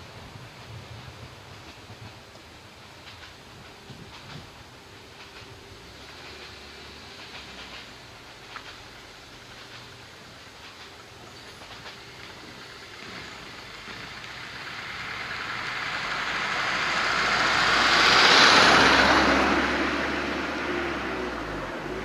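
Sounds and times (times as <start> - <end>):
car driving past: 12.9 - 22.0.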